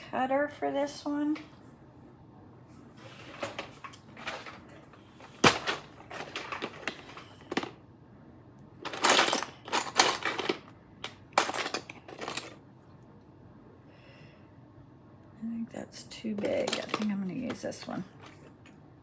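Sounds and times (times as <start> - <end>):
clay cutters clicking and clattering: 3.4 - 7.8, 8.8 - 12.6, 16.3 - 18.8.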